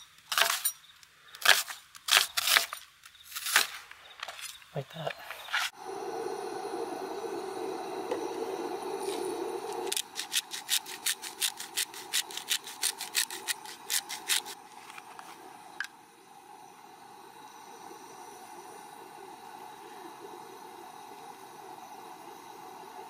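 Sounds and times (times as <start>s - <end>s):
spice shaker rattling: 9.9s - 14.6s.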